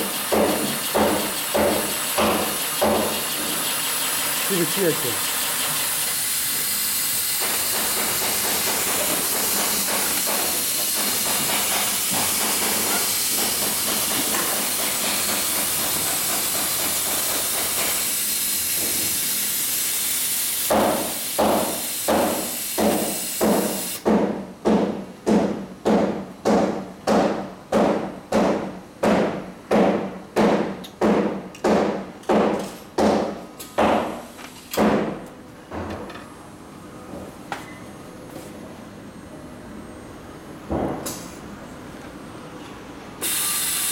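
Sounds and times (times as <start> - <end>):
sewing machine knocking: 0.0 - 5.9, 7.4 - 18.0
sewing machine rushing noise: 0.0 - 20.6.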